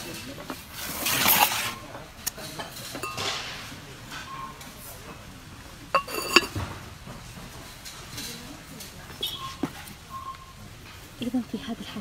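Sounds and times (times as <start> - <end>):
ceramic lid clinking on pot: 2.9 - 3.4, 5.9 - 6.7
handling noise: 5.9 - 10.0.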